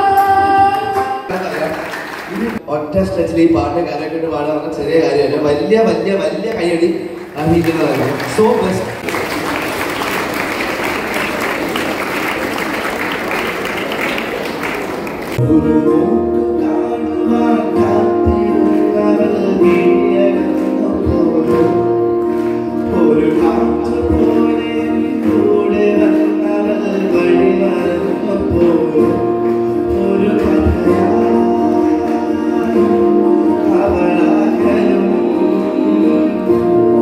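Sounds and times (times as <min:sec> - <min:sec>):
man singing into a microphone: 0:00.0 - 0:01.5, 0:15.4 - 0:37.0
audience applause: 0:01.3 - 0:02.6, 0:07.0 - 0:15.4
instrumental accompaniment: 0:14.8 - 0:37.0.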